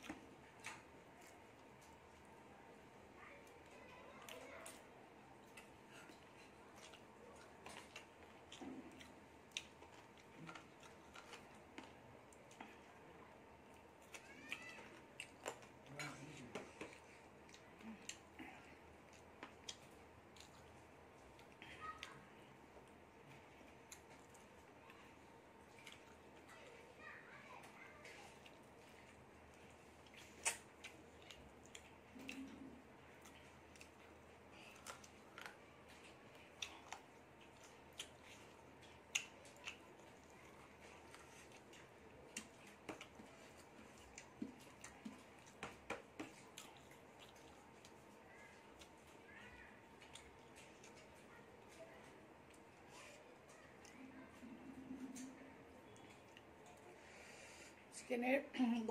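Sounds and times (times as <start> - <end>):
chewing clicks and smacks: 0.0 - 2.3, 3.5 - 12.9, 13.7 - 22.2, 25.6 - 26.7, 28.0 - 49.3, 49.9 - 56.9
fingers mixing rice on plate: 27.6 - 49.2
mouth clicks and smacks: 30.0 - 34.0.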